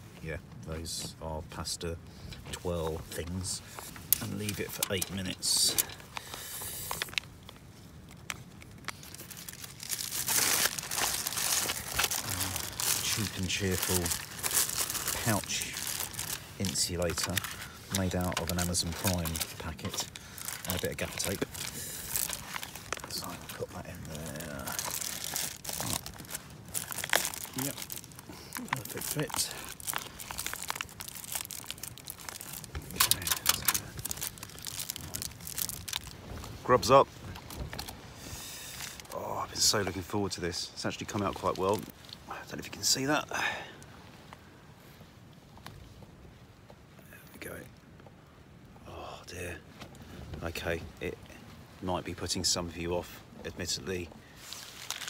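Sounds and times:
plastic bag crinkling: 0:04.0 - 0:38.0, 0:41.0 - 0:42.2, 0:54.3 - 0:55.0
spoon in foil pouch rustling: 0:08.6 - 0:36.2, 0:54.4 - 0:55.0.

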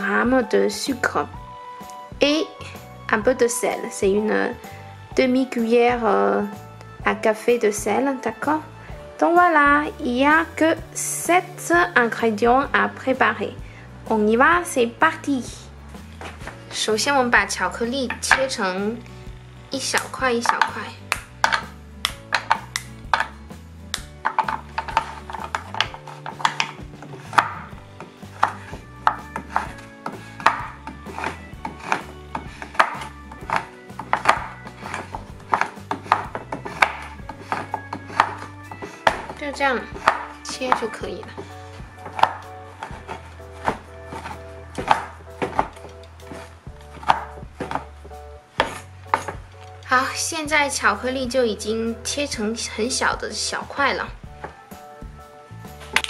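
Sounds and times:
knife chopping on wooden board: 0:20.0 - 0:49.4.

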